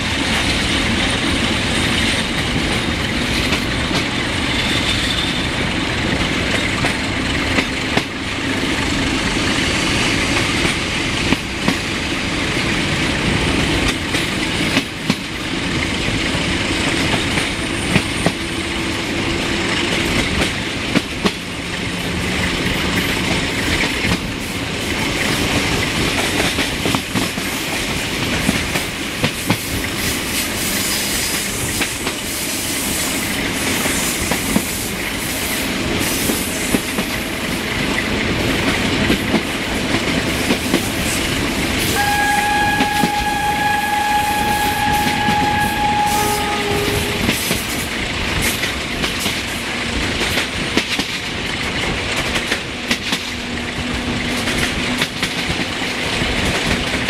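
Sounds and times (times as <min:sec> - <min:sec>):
train wheels clattering: 0:00.0 - 0:57.0
wind and rolling noise: 0:00.0 - 0:57.0
locomotive horn: 0:41.8 - 0:47.6.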